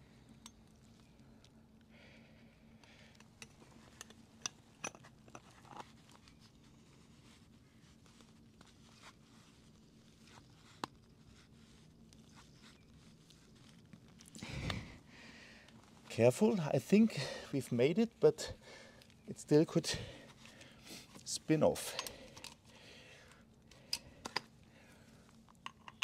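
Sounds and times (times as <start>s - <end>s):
faint clicks and metallic ticks: 0.3s - 1.9s.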